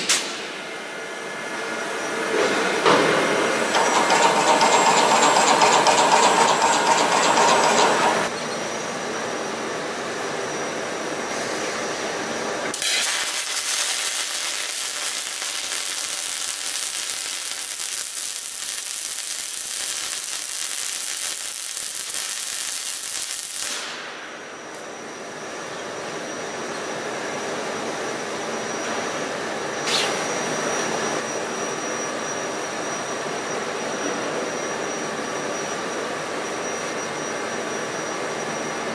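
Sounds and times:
steady machine hum: 0.0s - 12.6s
loud machine whir: 0.0s - 20.3s, 21.6s - 38.9s
welding arc hissing and crackling: 2.5s - 8.3s, 12.7s - 24.8s.

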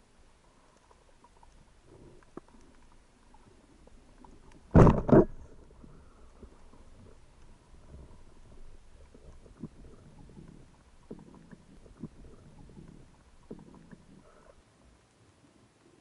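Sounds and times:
muffled underwater rumble: 0.0s - 15.1s
sharp clicks or knocks: 4.7s - 5.4s.

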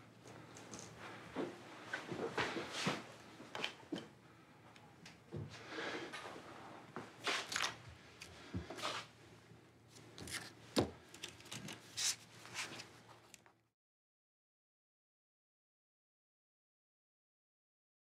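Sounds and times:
paper rustling: 10.0s - 13.5s.

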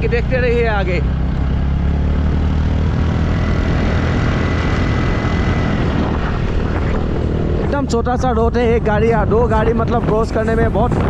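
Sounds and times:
scooter engine running: 0.0s - 7.8s
wind on microphone: 2.2s - 11.0s.

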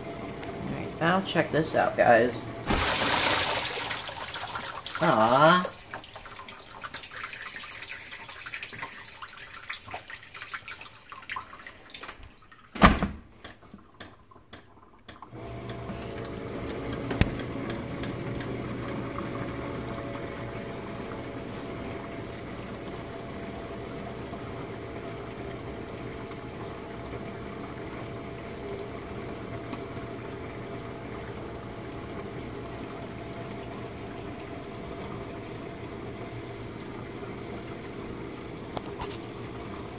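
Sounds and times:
dishwasher pump humming: 0.0s - 39.9s
circulating water: 2.6s - 12.8s, 13.4s - 39.9s
water dripping: 2.9s - 12.8s
dishwasher door thud: 12.8s - 13.2s.

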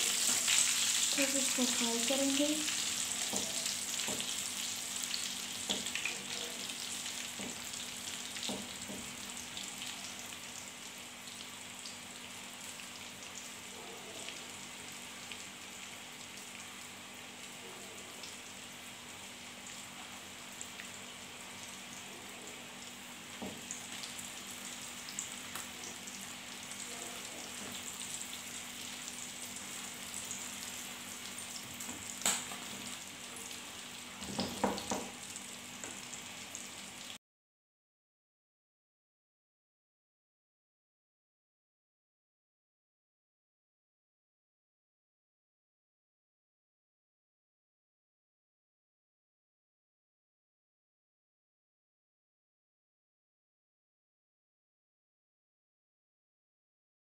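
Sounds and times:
food sizzling in hot oil: 0.0s - 37.2s
spatula tapping and scraping pan: 3.2s - 4.3s.

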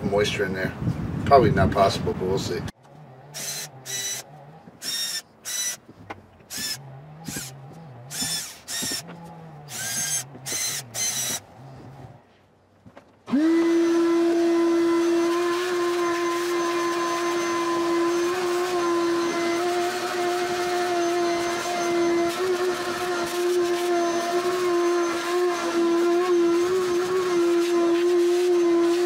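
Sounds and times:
cordless drill bursts: 3.3s - 5.9s, 6.5s - 11.5s, 13.3s - 29.0s
shop vacuum running: 13.3s - 29.0s.

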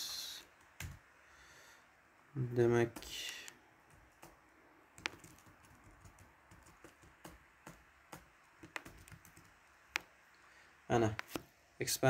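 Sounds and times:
computer keyboard clicking: 5.0s - 10.1s.

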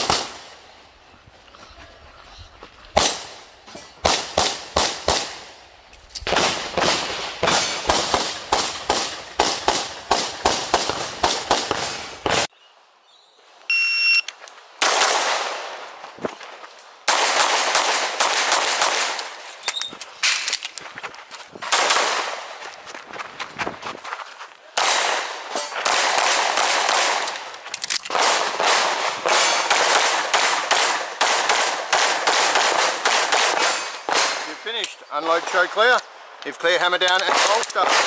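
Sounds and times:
short electronic beep: 13.7s - 14.3s.

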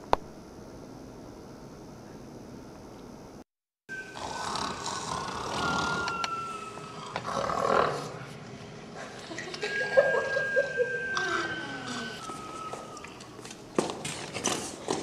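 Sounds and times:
thin high whistling tone: 3.9s - 7.4s, 9.5s - 13.4s
loud snoring: 4.1s - 6.3s, 7.0s - 8.2s.

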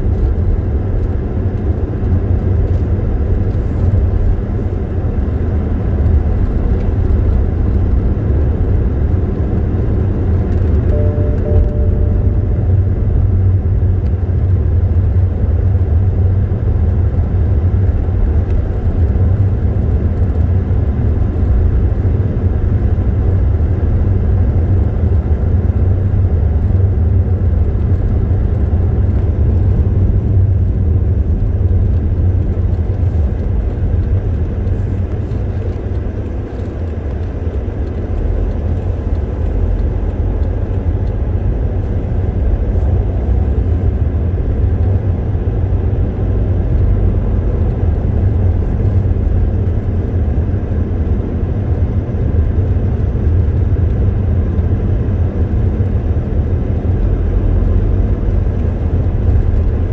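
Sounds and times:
car engine and tyre rumble: 0.0s - 59.9s.

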